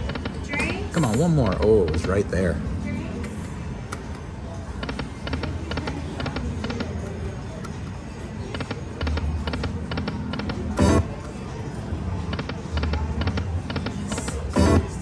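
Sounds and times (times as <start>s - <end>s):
slot machine electronic tones: 9.4s - 11.1s, 14.5s - 14.9s
slot machine music: 9.4s - 11.1s, 14.5s - 15.0s.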